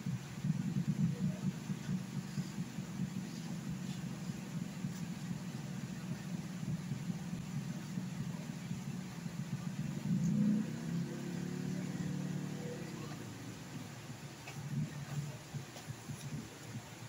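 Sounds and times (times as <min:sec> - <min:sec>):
low machine rumble: 0:00.0 - 0:17.0.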